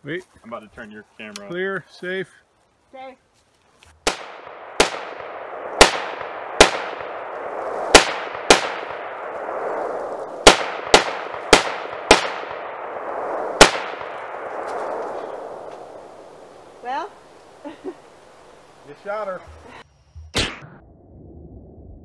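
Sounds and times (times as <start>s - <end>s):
rifle shots with ringing echo: 4.0s - 16.5s.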